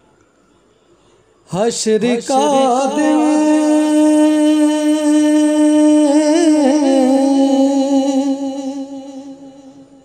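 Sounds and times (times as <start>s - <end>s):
solo voice singing: 1.5s - 10.0s.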